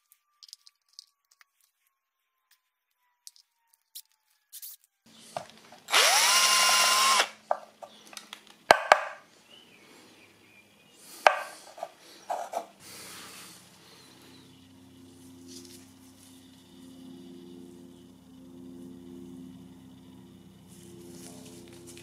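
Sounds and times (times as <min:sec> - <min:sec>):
power drill boring through plastic: 0:05.4 - 0:07.4.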